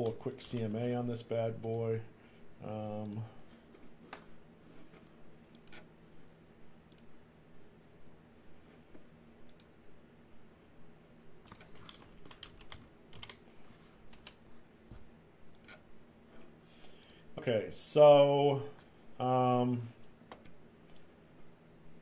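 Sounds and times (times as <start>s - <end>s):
faint low hum: 0.0s - 22.0s
typing on a computer keyboard: 11.4s - 13.4s, 14.1s - 14.4s.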